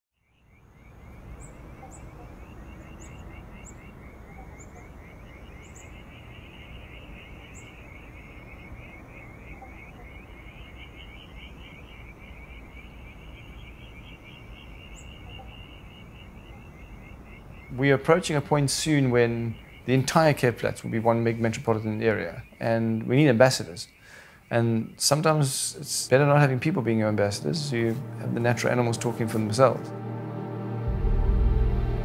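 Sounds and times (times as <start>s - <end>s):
chorus of pulsing trills: 24.3s - 32.0s
steady low rumble: 26.6s - 32.0s.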